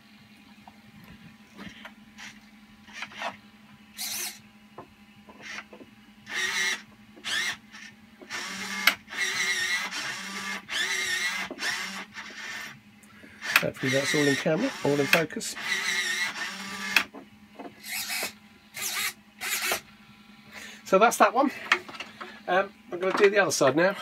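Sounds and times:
steady low hum: 0:00.0 - 0:24.0
servo motors whirring: 0:04.0 - 0:04.4, 0:05.3 - 0:17.1, 0:17.7 - 0:19.9.

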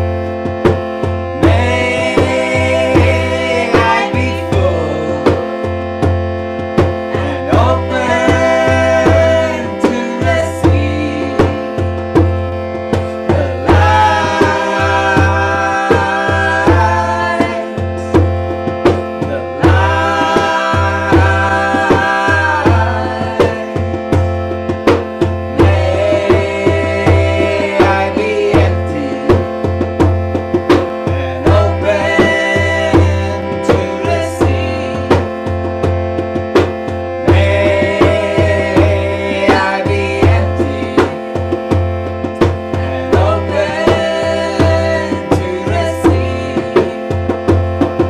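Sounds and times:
hand drum beat: 0:00.0 - 0:48.0
harmonium drone and chords: 0:00.0 - 0:48.0
woman and man singing: 0:01.4 - 0:05.4, 0:07.2 - 0:11.7, 0:13.1 - 0:18.3, 0:19.2 - 0:24.0, 0:25.5 - 0:29.6, 0:31.1 - 0:35.3, 0:37.3 - 0:41.4, 0:42.8 - 0:47.2.

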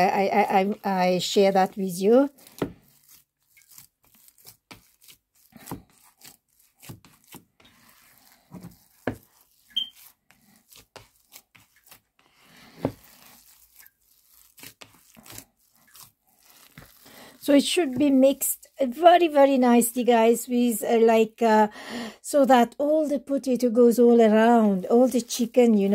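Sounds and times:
hand squishing soft food: 0:00.0 - 0:19.4.

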